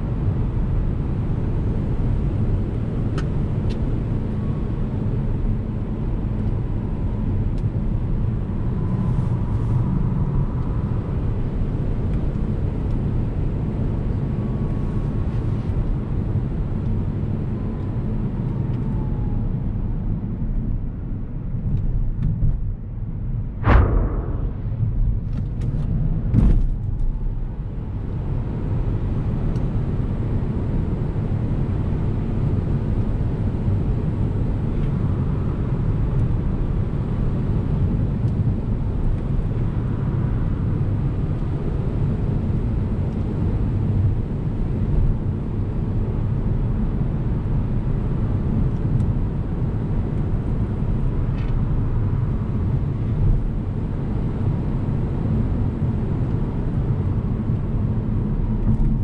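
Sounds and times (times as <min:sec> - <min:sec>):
sharp thump: 0:23.6 - 0:26.9.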